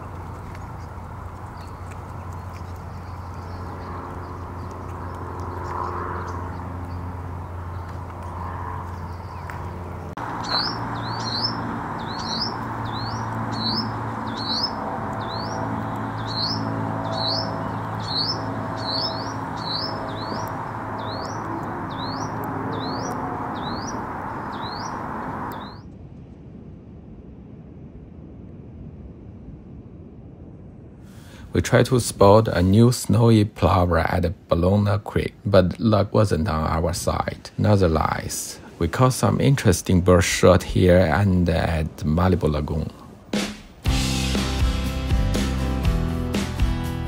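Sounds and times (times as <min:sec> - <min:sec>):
low steady hum: 0:00.0 - 0:43.3
songbird high-pitched rising note: 0:03.0 - 0:25.9.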